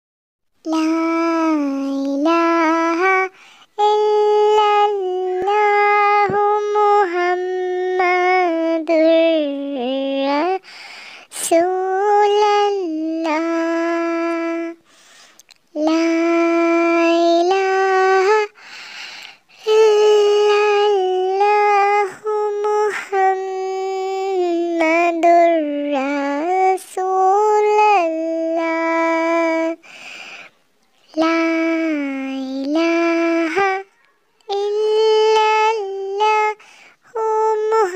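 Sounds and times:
high-pitched solo voice singing: 0.6 - 10.6, 15.5 - 18.6, 30.9 - 37.9.

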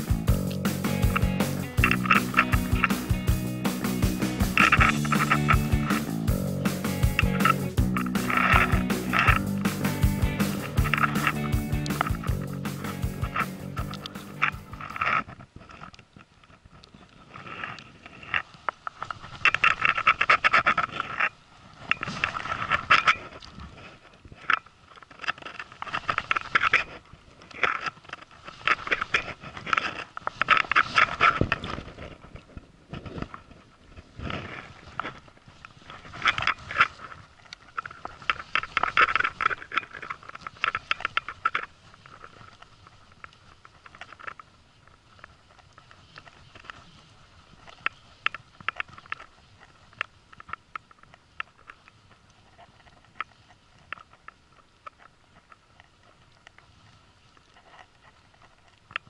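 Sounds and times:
fishing reel clicking: 0.5 - 15.0.

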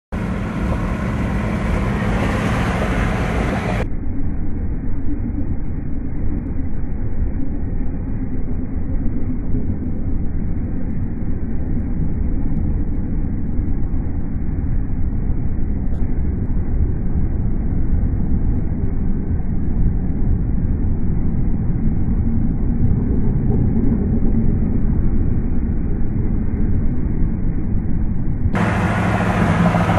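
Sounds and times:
road rumble and wind noise: 0.1 - 29.9.

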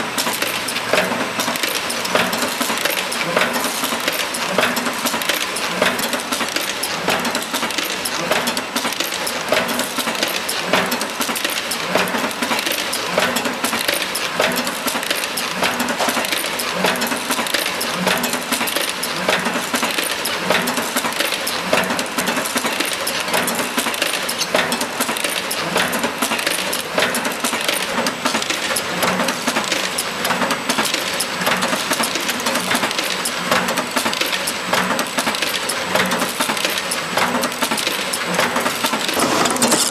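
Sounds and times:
steady machine noise: 34.0 - 39.9.

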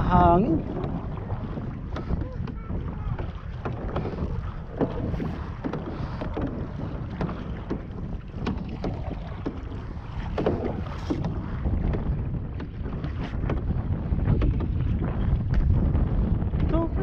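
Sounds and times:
paddles knocking on canoe hull: 0.0 - 17.0
paddles splashing in water: 0.0 - 17.0
wind noise on microphone: 0.0 - 17.0.

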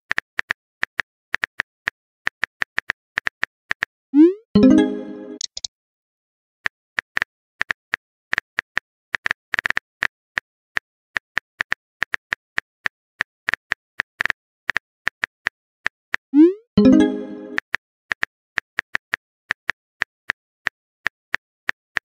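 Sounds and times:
phone keyboard typing clicks: 5.4 - 5.7.

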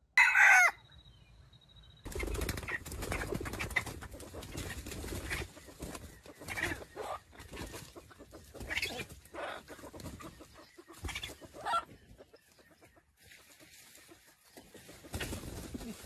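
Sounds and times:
roosters clucking: 2.1 - 16.0.

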